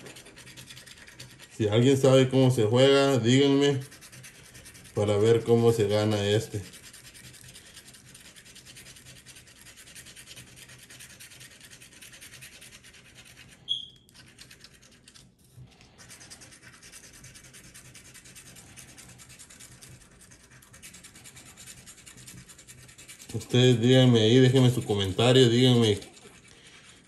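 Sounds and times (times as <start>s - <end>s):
lottery ticket being scratched: 0.0s - 27.0s
short high squeak: 13.6s - 14.0s.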